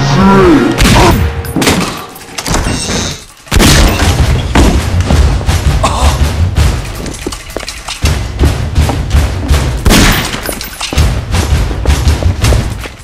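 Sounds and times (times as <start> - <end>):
gunshots: 3.5 - 5.7, 8.0 - 12.8.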